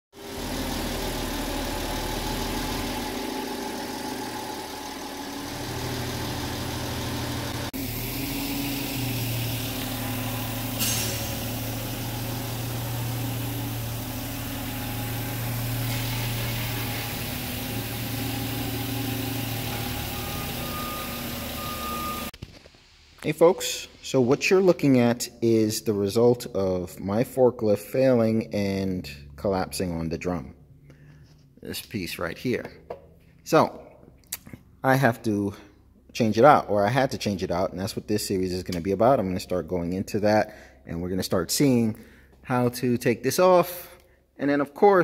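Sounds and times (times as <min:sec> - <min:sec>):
forklift engine running: 0:00.2 - 0:22.4
short steady tone: 0:13.2 - 0:22.3.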